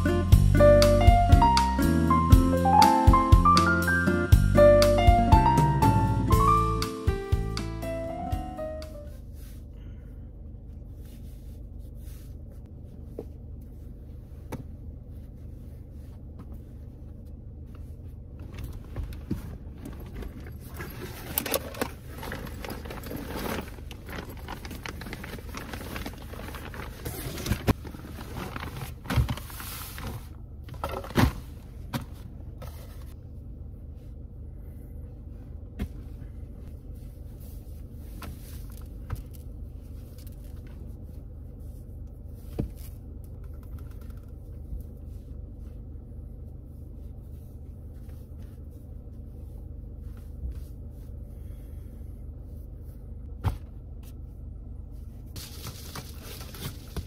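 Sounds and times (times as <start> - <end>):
steady low hum: 4.6 - 57.0
clothing rustling: 17.7 - 30.4.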